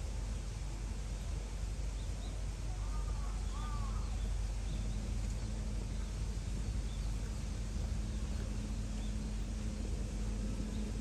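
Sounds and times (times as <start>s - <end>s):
steady low hum: 0.0s - 11.0s
faint high bird chirps: 2.0s - 6.1s.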